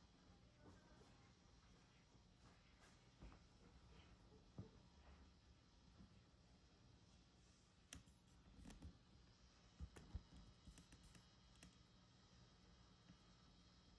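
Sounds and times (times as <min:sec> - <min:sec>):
faint clicks and taps: 0:07.8 - 0:09.0, 0:09.7 - 0:11.9.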